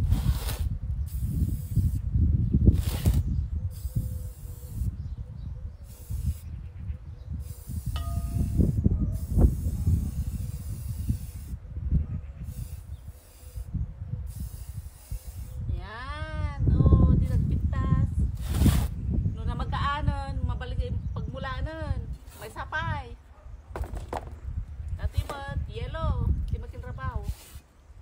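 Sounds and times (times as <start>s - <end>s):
spray paint can hissing: 0.0s - 2.1s, 2.7s - 5.1s, 5.8s - 6.6s, 7.4s - 11.6s, 12.4s - 13.7s, 14.3s - 15.6s, 18.4s - 19.0s, 27.2s - 27.7s
wind rumble on microphone: 0.0s - 28.0s.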